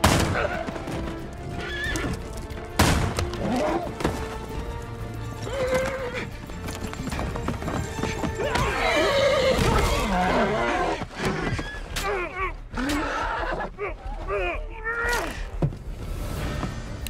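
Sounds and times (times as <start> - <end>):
background music: 0.0 - 17.0
horses whinnying: 0.3 - 2.3, 3.4 - 4.2, 5.2 - 15.4
hoofbeats galloping on dirt: 0.4 - 11.9.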